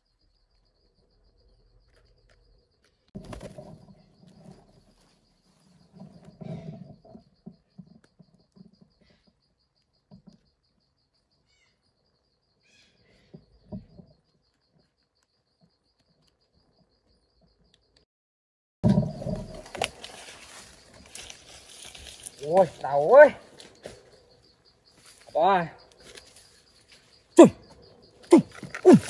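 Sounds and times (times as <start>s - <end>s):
bird chirps: 3.8s - 18.0s
rustling noise: 18.9s - 22.8s
insect trilling: 19.0s - 29.0s.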